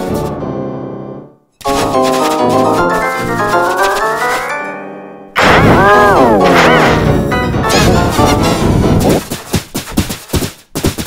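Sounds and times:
cartoon pencil scratching strokes: 0:01.6 - 0:04.6.

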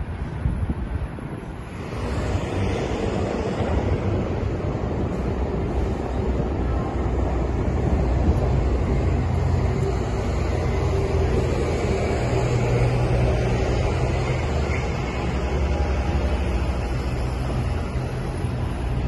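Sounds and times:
traffic engines rumbling: 0:00.0 - 0:19.0.

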